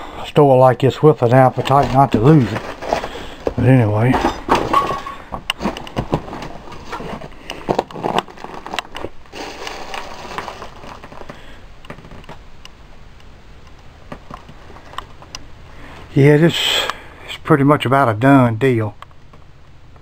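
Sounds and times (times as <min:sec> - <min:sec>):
footsteps crunching over debris: 0:01.2 - 0:12.4.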